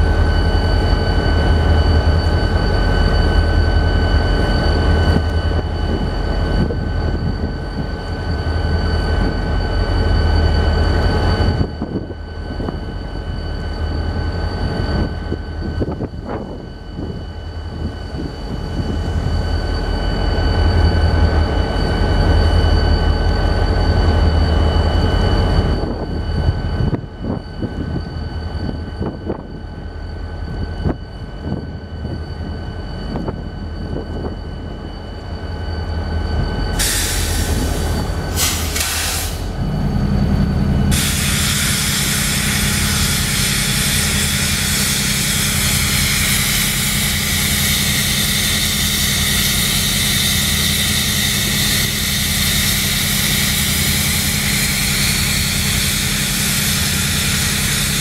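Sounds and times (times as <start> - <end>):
locomotive engines rumbling: 0.0 - 58.0
air hissing: 36.8 - 39.6, 40.9 - 58.0.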